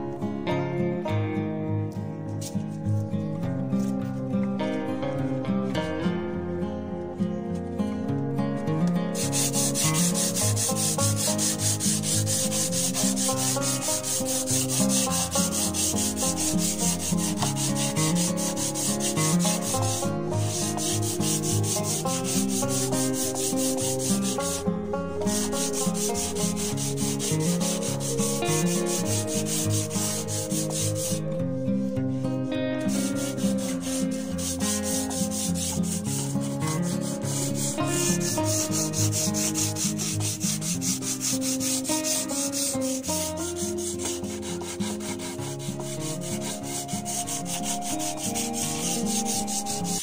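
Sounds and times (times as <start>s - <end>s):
sandpaper rasping on board: 9.1s - 31.4s, 32.8s - 50.0s.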